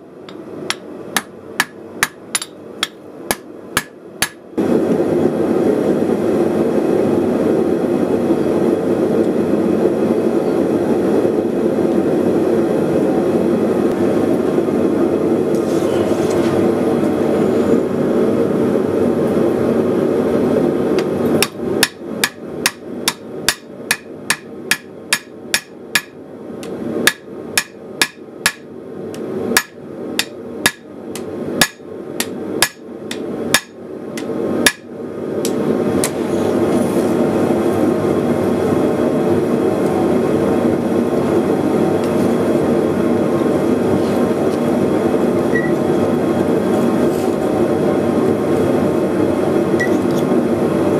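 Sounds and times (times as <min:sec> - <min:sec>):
hammer striking steel on anvil: 0:00.3 - 0:04.4, 0:21.4 - 0:26.2, 0:27.1 - 0:28.7, 0:29.6 - 0:35.6.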